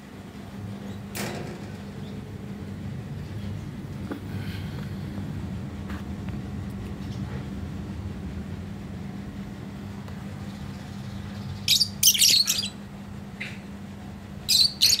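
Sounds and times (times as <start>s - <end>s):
steady low hum: 0.0s - 15.0s
lovebirds chirping: 10.4s - 12.8s, 14.5s - 15.0s.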